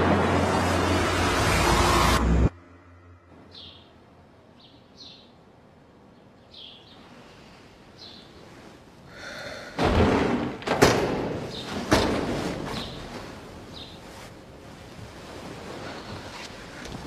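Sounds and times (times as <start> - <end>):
bird chirping: 3.5 - 5.4, 6.1 - 7.1.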